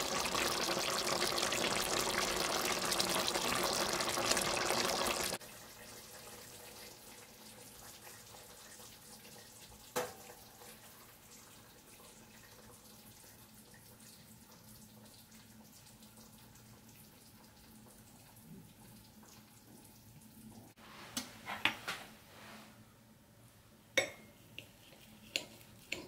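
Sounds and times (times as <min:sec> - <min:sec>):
faint room noise: 0:05.4 - 0:26.0.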